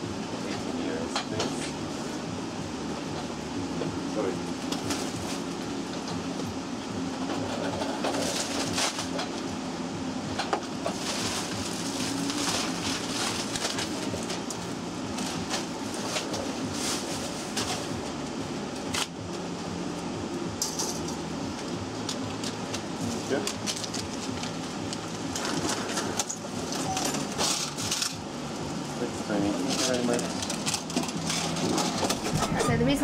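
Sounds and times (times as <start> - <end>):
steady low hum: 0.0 - 33.0
plastic bags rustling: 7.7 - 9.3, 10.8 - 18.0, 22.4 - 28.2, 29.3 - 33.0.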